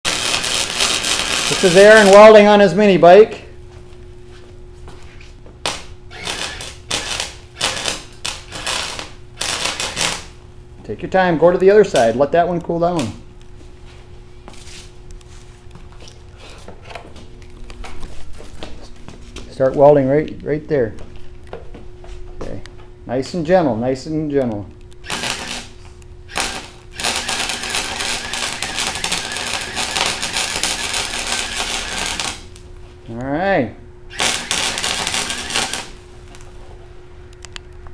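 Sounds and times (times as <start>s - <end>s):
arc welding crackling: 0.0s - 3.4s, 5.3s - 13.6s, 22.5s - 36.6s.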